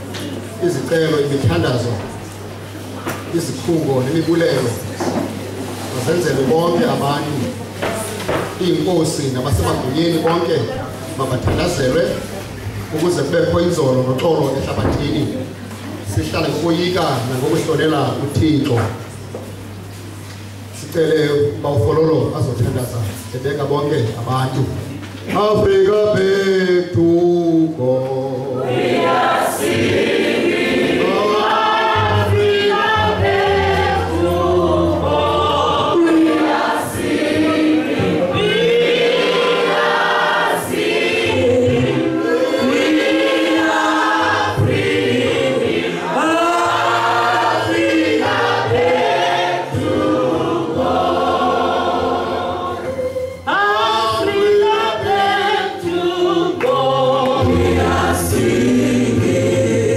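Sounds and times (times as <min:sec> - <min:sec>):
congregation singing a hymn: 0:00.0 - 0:18.9, 0:25.3 - 0:59.9
man leading on microphone: 0:08.6 - 0:15.5.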